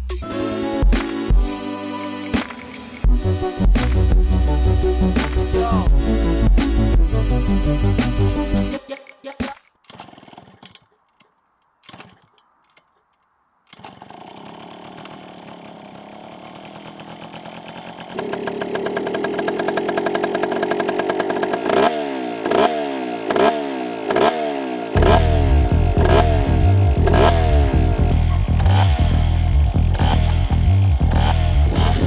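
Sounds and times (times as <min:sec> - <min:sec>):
engine revving: 0:02.4 - 0:08.7, 0:13.8 - 0:32.0
engine kick-start kicks: 0:09.8 - 0:13.1, 0:13.7 - 0:22.7, 0:26.0 - 0:32.0
two-stroke engine idling: 0:09.9 - 0:10.9, 0:13.8 - 0:32.0.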